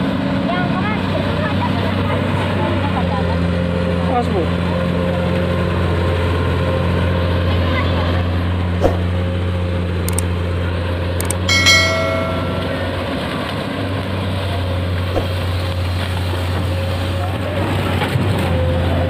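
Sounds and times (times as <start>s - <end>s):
short clicks: 10.1s - 10.3s, 11.2s - 11.5s
brief ringing chime: 11.4s - 13.4s
excavator diesel engine running: 15.8s - 19.0s.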